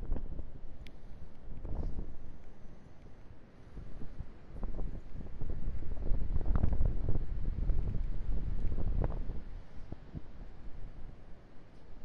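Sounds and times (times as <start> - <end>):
wind buffeting microphone: 0.0 - 0.6, 1.4 - 2.4, 3.7 - 11.2.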